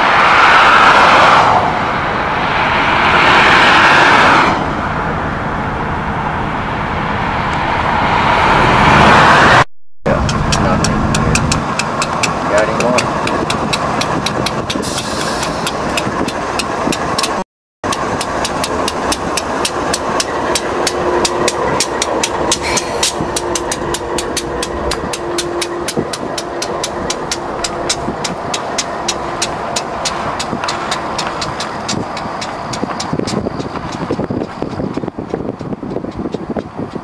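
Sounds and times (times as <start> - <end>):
diesel locomotive engines: 0.0 - 37.0
train wheels clicking on rails: 10.2 - 37.0.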